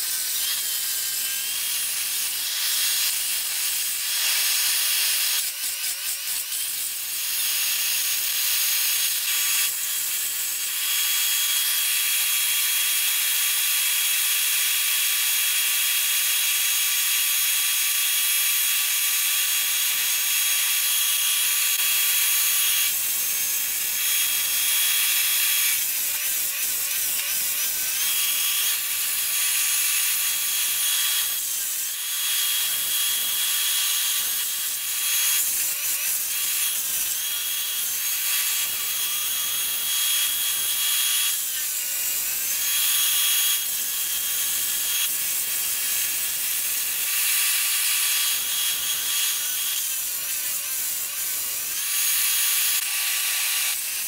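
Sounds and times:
chainsaw cutting wood: 0.0s - 54.0s.

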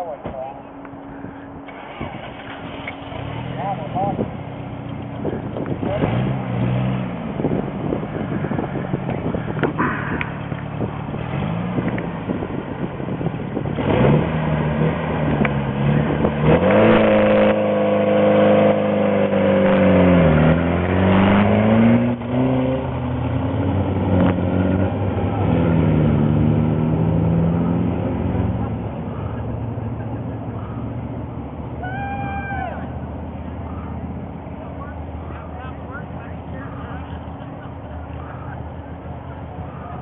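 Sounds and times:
race car engine revving: 0.8s - 31.8s.

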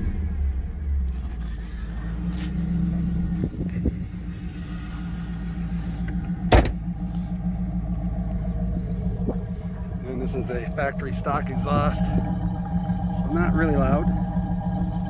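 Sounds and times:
car engine idling: 0.0s - 15.0s
car door shutting: 5.8s - 6.9s.

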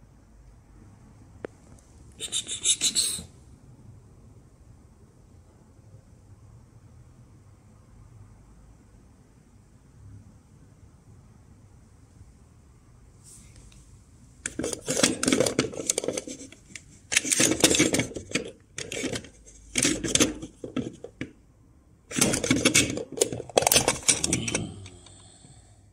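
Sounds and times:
plastic case clicking and clattering: 14.5s - 21.4s, 22.1s - 24.9s.

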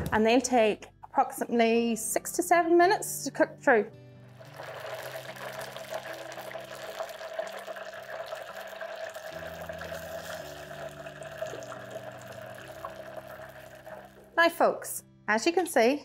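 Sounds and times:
fish sizzling in fryer oil: 4.4s - 14.4s.

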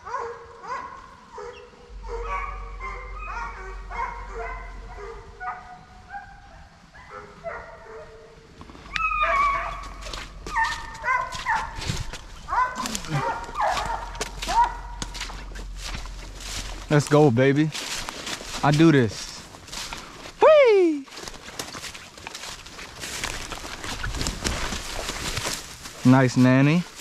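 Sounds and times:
hounds baying: 0.0s - 8.3s, 8.9s - 16.9s.

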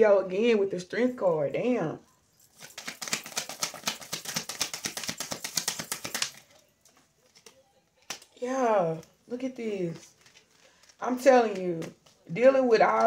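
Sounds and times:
cards being shuffled: 2.4s - 9.2s, 9.8s - 13.0s.

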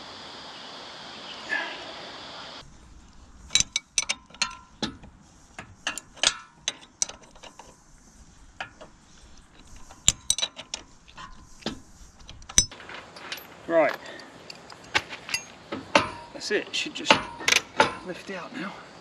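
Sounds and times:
spanner clicking on metal nuts: 3.4s - 7.8s, 8.6s - 12.7s, 14.2s - 16.4s, 17.1s - 18.1s.

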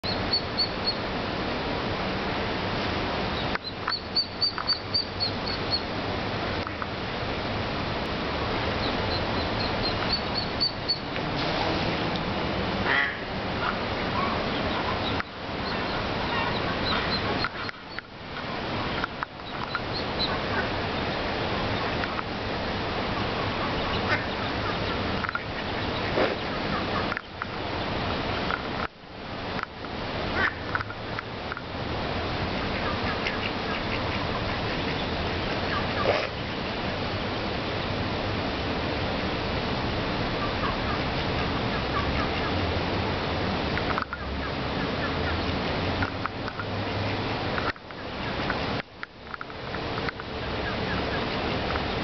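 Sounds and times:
ducklings peeping: 0.0s - 1.0s, 3.3s - 5.9s, 8.4s - 11.1s, 12.8s - 22.3s, 23.1s - 28.6s, 32.5s - 37.3s, 40.4s - 42.6s, 43.8s - 45.5s, 50.0s - 52.0s
background hiss: 0.0s - 52.0s
steady rushing noise: 0.0s - 52.0s.

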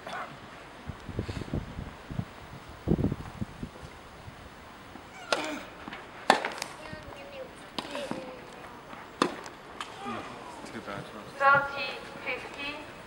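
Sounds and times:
tennis balls struck by rackets: 5.3s - 6.8s, 7.6s - 10.4s.

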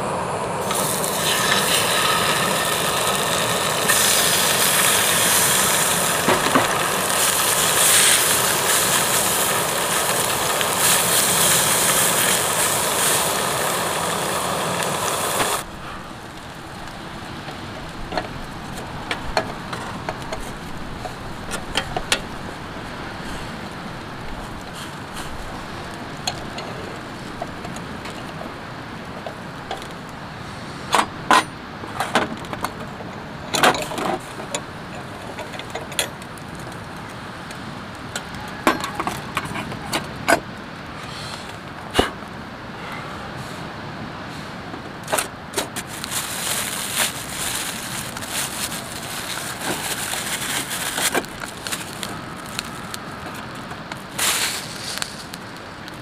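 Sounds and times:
louder hiss: 0.0s - 16.8s, 54.1s - 55.5s
steady background hiss: 0.0s - 56.0s.

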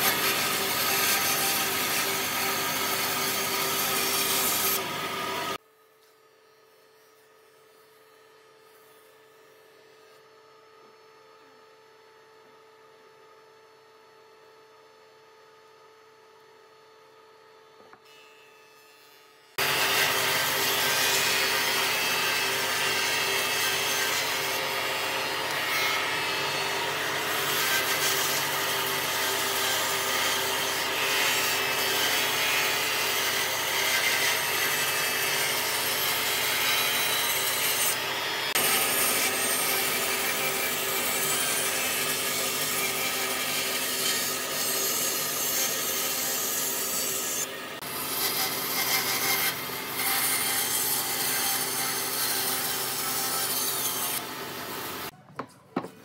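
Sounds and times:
band saw cutting wood: 0.0s - 5.6s, 18.9s - 55.1s.

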